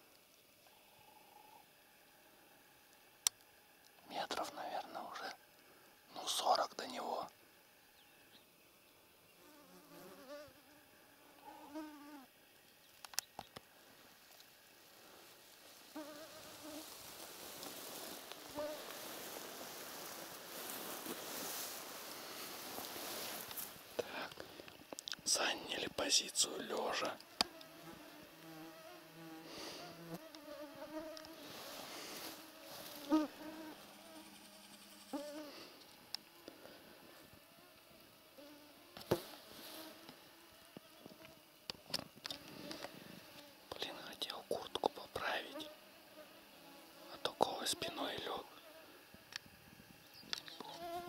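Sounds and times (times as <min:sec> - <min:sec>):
flying insect buzzing: 0:09.3 - 0:12.4, 0:14.2 - 0:24.9, 0:27.0 - 0:43.7, 0:45.2 - 0:51.0
soft rustling: 0:13.8 - 0:24.6, 0:31.1 - 0:33.9.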